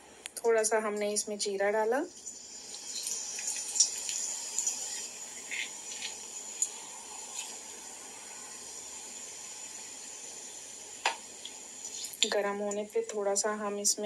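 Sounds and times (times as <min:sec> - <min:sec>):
seeds sizzling in oil: 0:01.9 - 0:13.2
pops and crackles: 0:02.9 - 0:07.6.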